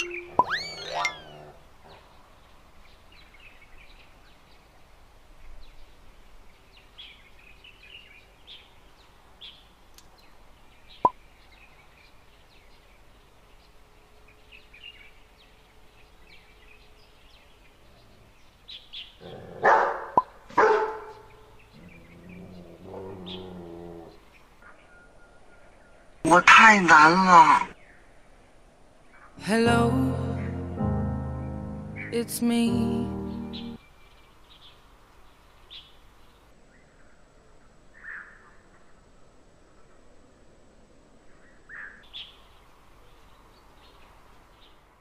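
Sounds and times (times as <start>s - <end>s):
faint bird chirps: 0.0s - 2.0s, 21.1s - 26.1s
dog barking: 19.5s - 21.3s.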